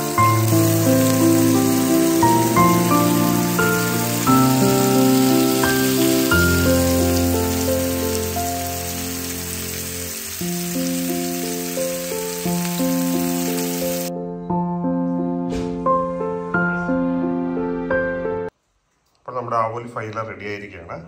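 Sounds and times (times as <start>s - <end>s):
fish sizzling in a pan: 0.0s - 14.1s
background music of held notes: 0.0s - 18.5s.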